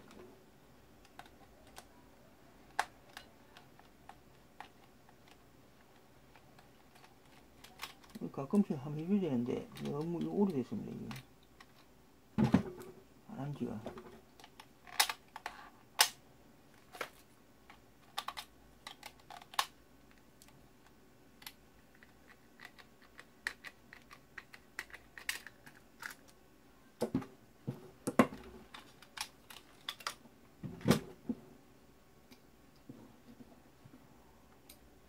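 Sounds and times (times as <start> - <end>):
plastic parts clicking and tapping: 1.0 - 1.9, 2.6 - 8.7, 13.9 - 16.2, 16.8 - 26.4, 27.0 - 30.2.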